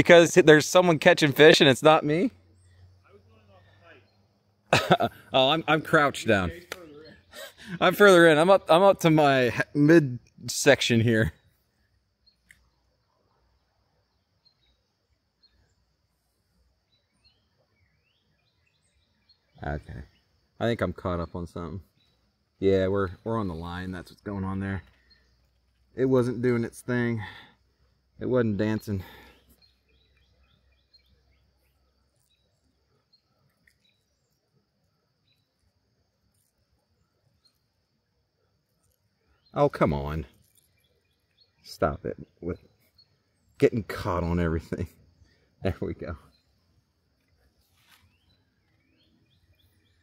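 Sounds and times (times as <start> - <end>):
faint bird chirps: 10.1 - 50.0.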